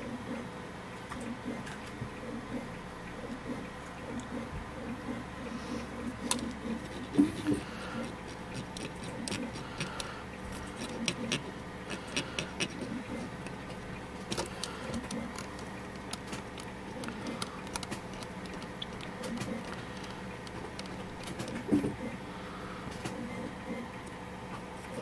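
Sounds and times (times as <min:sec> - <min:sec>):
cotton swab rubbing metal: 0:06.8 - 0:21.3
clicks and taps on metal mechanism: 0:13.4 - 0:21.7.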